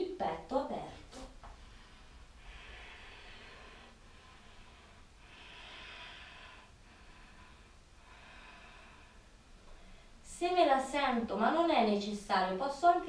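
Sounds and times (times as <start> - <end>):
woman breathing slowly: 1.4 - 10.2.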